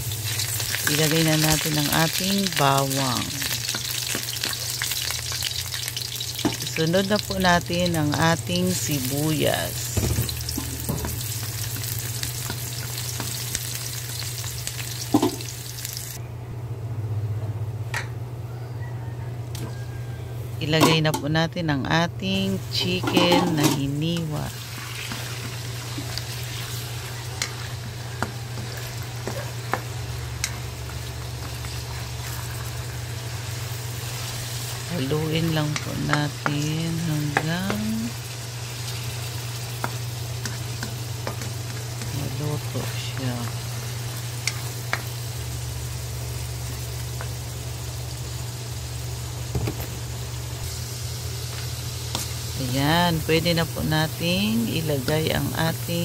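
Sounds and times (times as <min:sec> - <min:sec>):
chicken sizzling in hot oil: 0:00.0 - 0:16.2, 0:22.7 - 0:56.0
spatula tapping wok: 0:27.3 - 0:30.7, 0:35.6 - 0:37.8.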